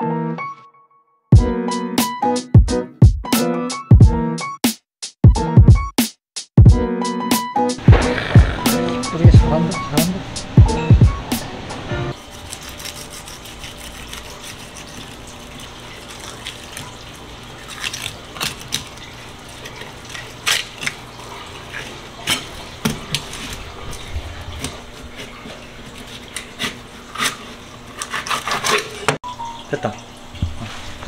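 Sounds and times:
knife clicking and scraping bones: 12.4s - 16.9s, 17.6s - 21.0s, 26.0s - 29.2s.

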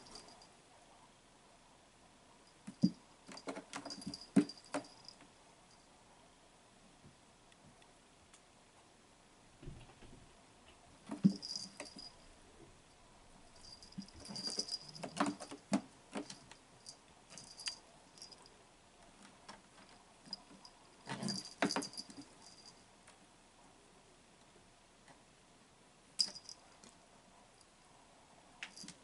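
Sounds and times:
high jingling ring: 0.0s - 0.5s, 3.3s - 5.2s, 11.2s - 12.3s, 13.5s - 15.5s, 16.8s - 18.5s, 20.3s - 22.8s, 26.2s - 26.7s
knocks and thumps: 11.1s - 12.1s, 21.1s - 22.2s.

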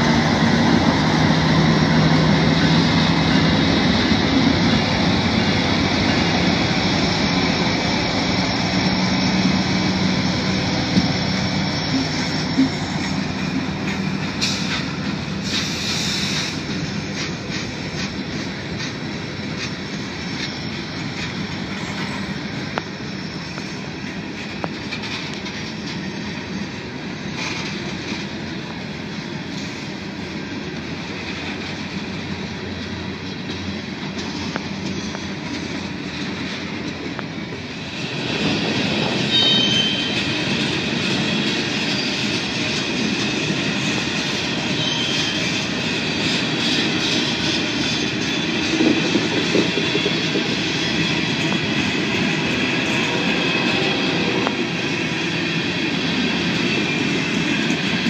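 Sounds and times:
train wheels rumbling on rail: 0.0s - 58.0s
high wheel squeals: 20.0s - 24.0s, 25.6s - 27.7s, 38.0s - 42.8s, 43.7s - 51.8s.

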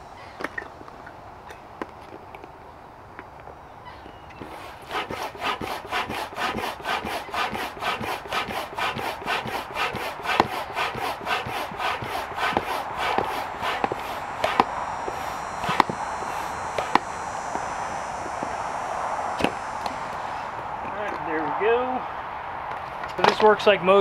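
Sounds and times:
hand pump strokes: 4.3s - 18.6s.

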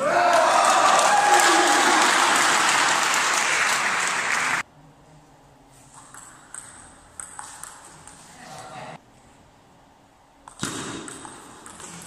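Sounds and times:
spectators applauding and cheering: 0.0s - 4.6s.

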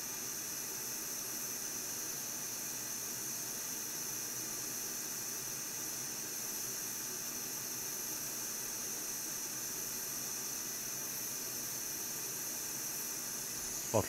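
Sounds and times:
steady hiss: 13.4s - 14.0s.

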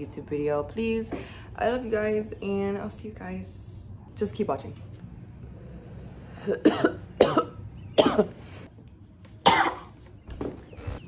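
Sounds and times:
woman coughing: 6.5s - 8.4s, 9.4s - 9.9s.

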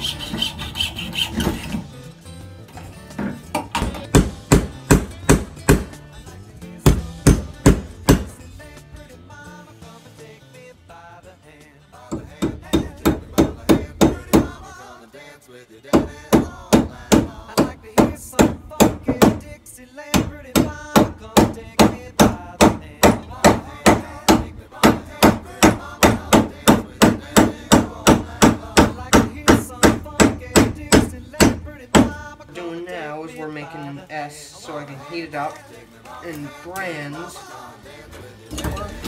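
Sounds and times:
hammer striking hatchet head: 3.8s - 6.0s, 6.9s - 8.3s, 20.2s - 32.2s.

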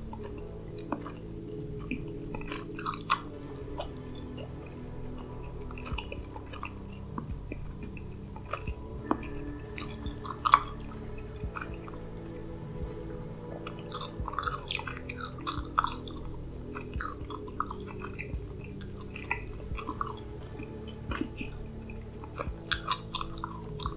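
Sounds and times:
soft musical drone: 0.0s - 23.9s
gum chewing mouth clicks: 0.1s - 4.5s, 13.3s - 18.3s, 19.0s - 23.9s.

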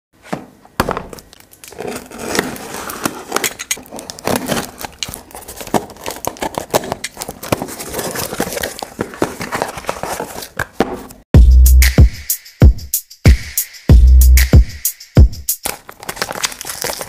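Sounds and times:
cardboard flaps rustling: 0.2s - 11.2s
packing tape ripping: 1.2s - 10.6s, 15.6s - 17.0s.

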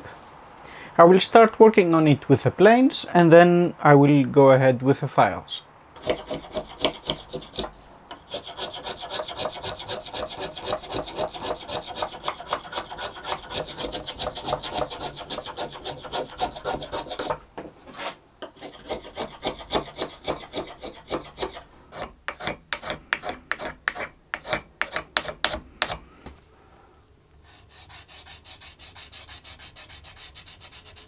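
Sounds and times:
hand plane shaving wood: 6.0s - 25.6s, 27.5s - 31.0s.

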